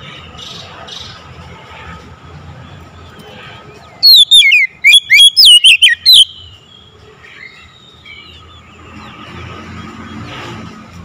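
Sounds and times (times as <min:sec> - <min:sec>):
bird singing whistled notes: 0:04.0 - 0:08.8.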